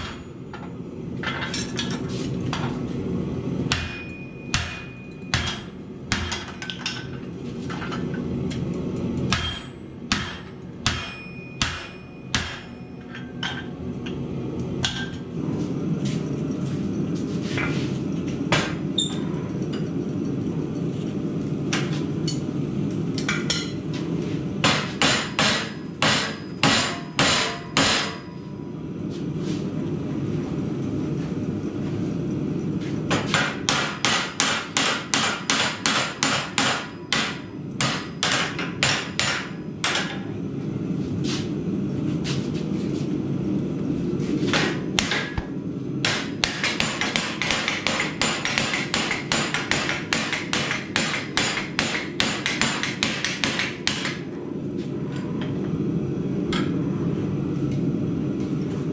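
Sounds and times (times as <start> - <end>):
hammer striking hot steel: 0.0 - 0.5, 3.6 - 8.2, 9.2 - 14.2, 14.8 - 15.2, 18.5 - 19.2, 24.6 - 28.4, 33.1 - 40.3, 44.5 - 54.3.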